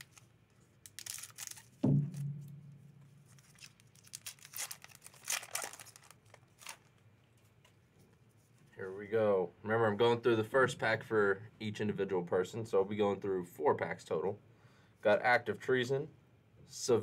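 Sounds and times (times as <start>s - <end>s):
foil wrapper tearing and crinkling: 0.0s - 1.8s, 3.3s - 7.0s
dull thump: 1.8s - 2.8s.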